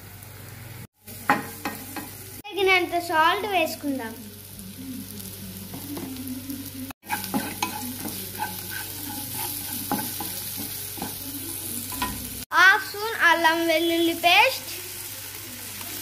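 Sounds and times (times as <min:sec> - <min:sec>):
food sizzling in oil: 0:00.0 - 0:16.0
wooden spatula scraping a pan: 0:07.1 - 0:11.8.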